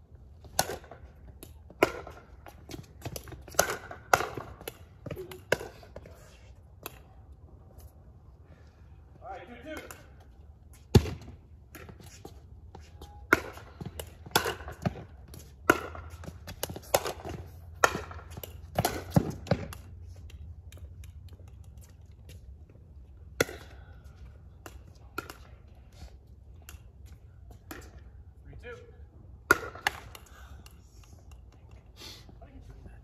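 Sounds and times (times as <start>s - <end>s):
paddles hitting plastic ball: 0.5s - 6.1s, 13.3s - 21.8s, 29.4s - 31.6s.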